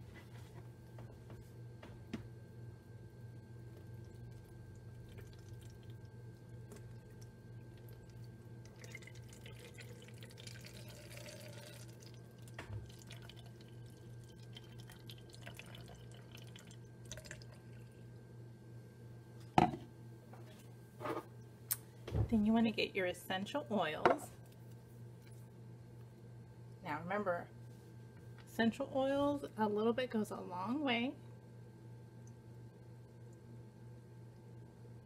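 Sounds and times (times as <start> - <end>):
low hum: 0.0 - 22.8
liquid trickling and dripping: 3.7 - 18.1
cup knocking on counter: 19.6 - 19.9.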